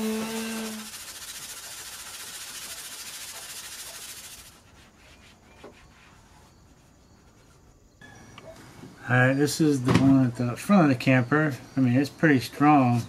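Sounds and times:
sandpaper rasping on plastic: 0.0 - 7.7.

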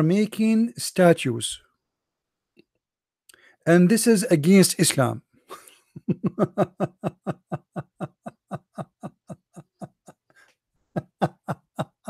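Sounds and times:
man laughing: 5.5 - 12.0.

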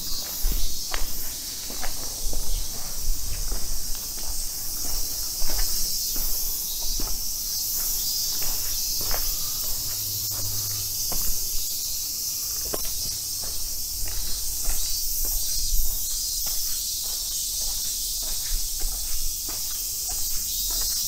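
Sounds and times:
footsteps on a paved path: 0.0 - 21.0
high-pitched insect drone: 0.0 - 21.0.

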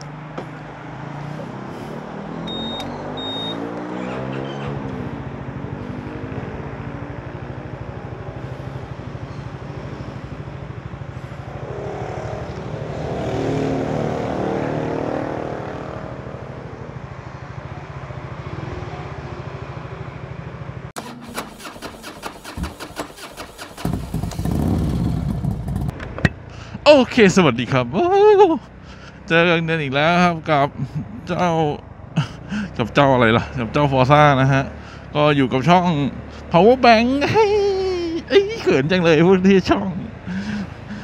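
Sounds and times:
motor scooter engine running: 6.9 - 12.7, 20.7 - 26.4
uneven rapid rattling: 21.0 - 25.9.

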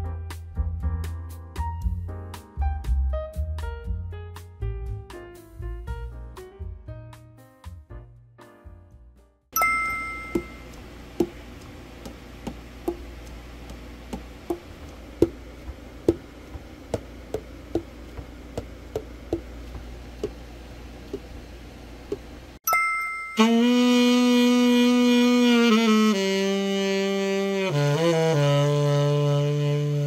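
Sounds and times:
saxophone keys clacking: 9.6 - 11.4, 22.7 - 24.4.

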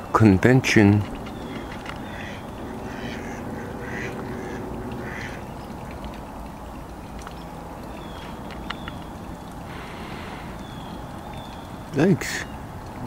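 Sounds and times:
steady background hiss: 0.0 - 13.0
ducks quacking: 1.2 - 6.0.

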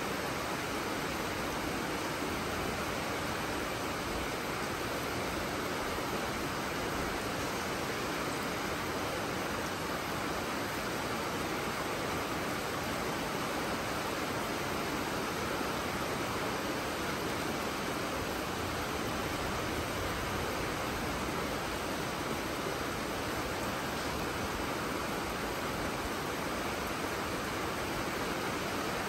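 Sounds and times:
steady rain falling: 0.0 - 29.0.

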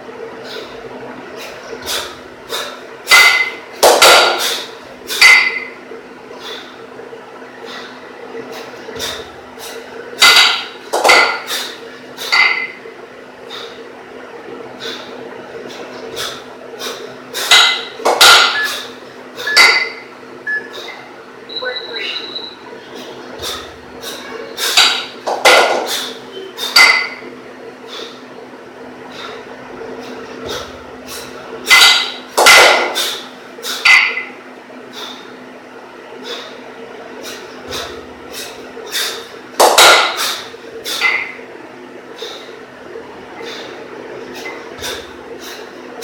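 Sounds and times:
kettlebells clanking: 1.8 - 5.8, 9.0 - 12.8, 17.4 - 20.1, 23.4 - 27.3, 31.6 - 34.3, 37.3 - 41.4
kettlebells clinking together: 19.5 - 20.0, 26.7 - 27.2, 31.7 - 32.9.

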